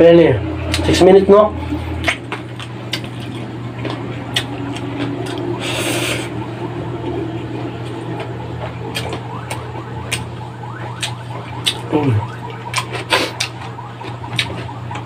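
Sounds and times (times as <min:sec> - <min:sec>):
steady low hum: 0:00.0 - 0:15.0
chewing clicks and smacks: 0:02.0 - 0:05.5, 0:07.8 - 0:15.0.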